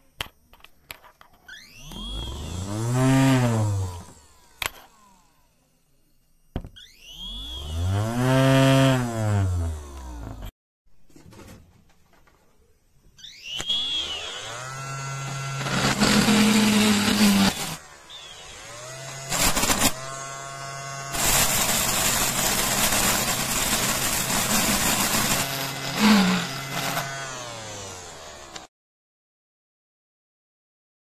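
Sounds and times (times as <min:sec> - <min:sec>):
drill bit grinding concrete: 0:00.2 - 0:05.2, 0:06.8 - 0:10.5, 0:13.5 - 0:28.7
drill motor whining: 0:01.4 - 0:05.6, 0:06.6 - 0:10.5, 0:13.2 - 0:28.7.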